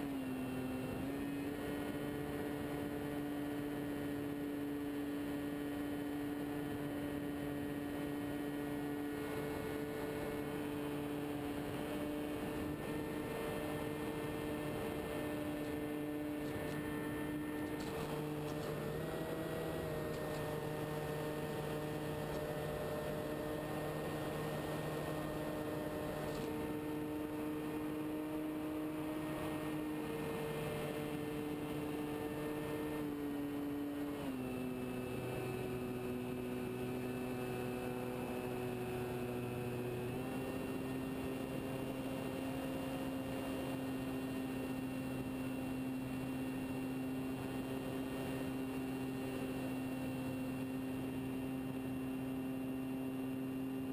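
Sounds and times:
model plane motor humming: 0.0 - 53.9.

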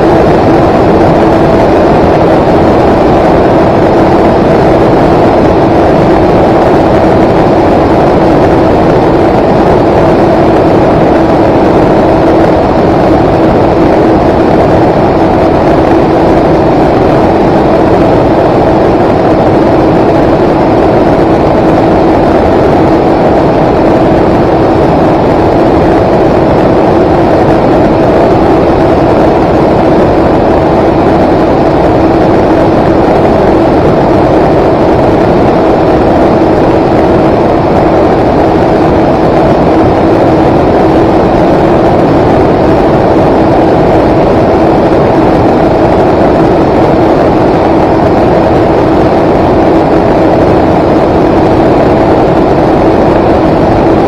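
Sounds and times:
aircraft motor and propellers humming: 0.0 - 54.0.

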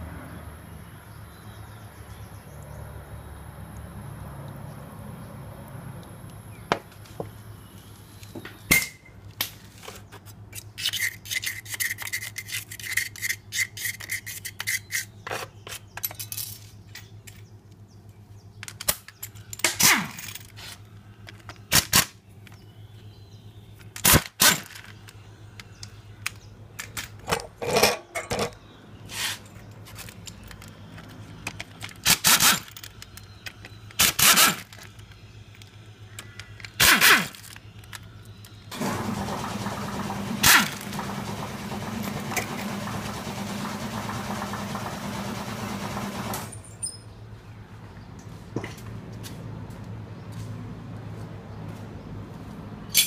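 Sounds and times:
metallic clicks of tools and bolts: 10.5 - 17.8, 18.6 - 22.6, 23.8 - 28.6, 29.4 - 38.6
power tool running in bursts: 38.7 - 46.6.

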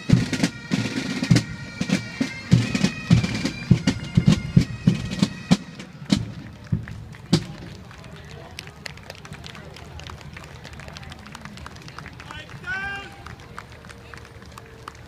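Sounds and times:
bagpipes playing march: 0.0 - 7.8, 12.2 - 13.4
drum line: 0.0 - 7.8.

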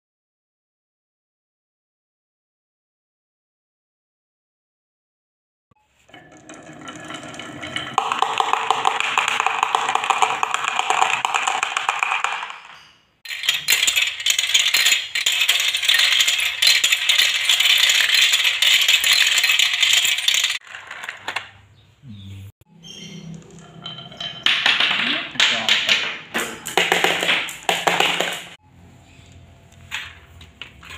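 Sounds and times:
marbles rattling on plastic track: 6.1 - 21.4.

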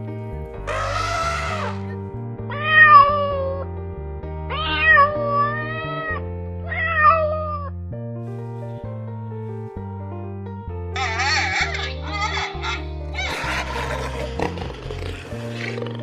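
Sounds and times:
background music: 0.0 - 16.0
kitten meowing: 0.7 - 1.9, 2.5 - 3.6.

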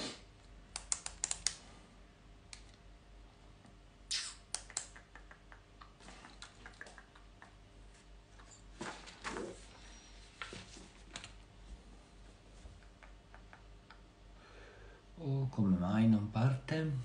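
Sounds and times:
faint low hum: 0.2 - 17.0
keys clicking: 0.8 - 1.6.

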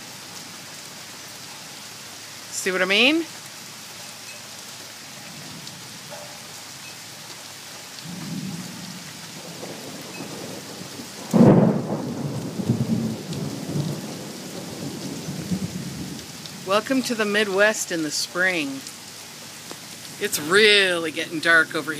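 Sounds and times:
thunder rumbling: 8.0 - 16.9.

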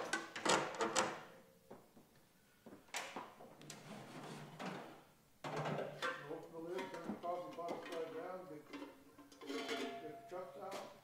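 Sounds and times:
metal clanks and rattles: 4.2 - 11.0.

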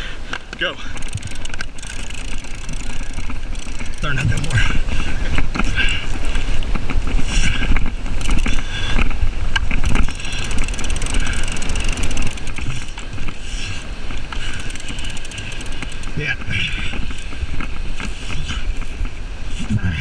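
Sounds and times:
wind buffeting microphone: 0.0 - 20.0
faint clicks: 0.3 - 4.6, 7.7 - 19.1
breaking surf: 0.4 - 19.5.

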